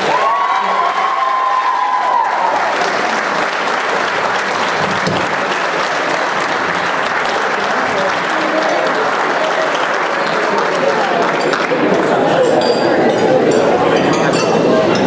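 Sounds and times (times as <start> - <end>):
person cheering: 0.0 - 2.8
guests applauding: 0.0 - 12.7.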